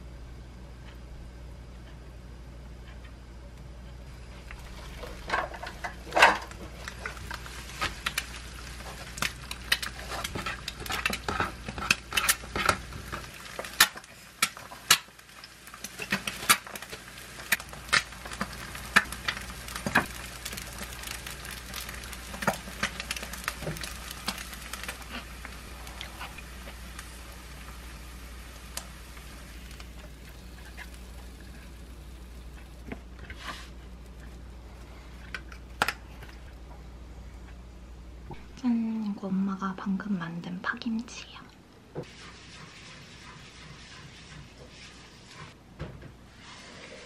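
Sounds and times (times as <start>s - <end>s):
eggs sizzling in a frying pan: 4.1s - 36.5s.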